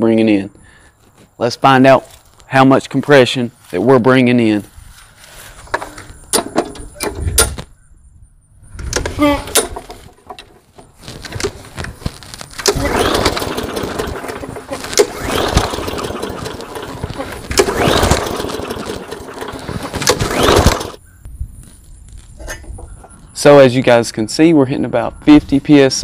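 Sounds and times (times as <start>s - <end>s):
recoil pull-starter cord yanked: 8.9s - 11.6s, 12.5s - 21.0s
engine turning over: 9.0s - 21.0s.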